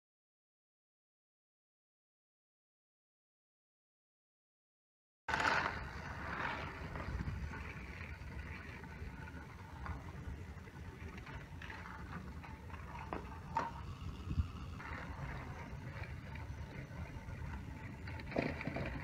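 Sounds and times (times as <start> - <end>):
toy trains crashing clatter: 5.3 - 19.0
toy trains whirring: 5.3 - 19.0
wheels rattling: 5.3 - 19.0.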